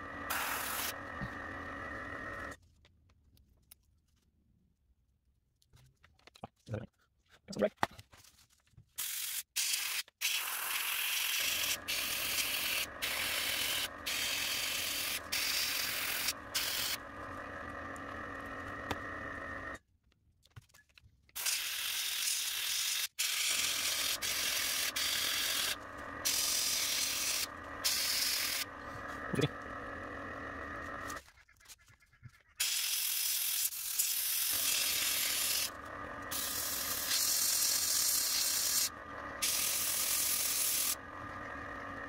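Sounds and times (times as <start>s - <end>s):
airbrush spraying hiss: 0.0s - 1.5s, 11.4s - 17.0s, 24.0s - 28.7s, 36.3s - 41.0s.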